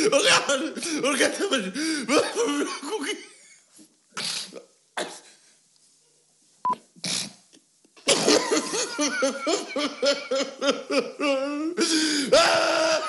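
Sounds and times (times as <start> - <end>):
man sobbing and wailing: 0.0 - 3.3, 8.5 - 13.0.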